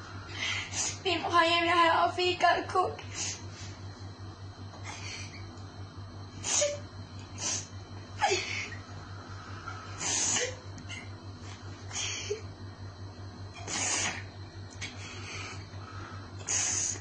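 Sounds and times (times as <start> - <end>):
low electrical hum: 0.0 - 17.0
boy sobbing and sniffing: 10.0 - 10.6, 13.6 - 15.4, 16.4 - 17.0.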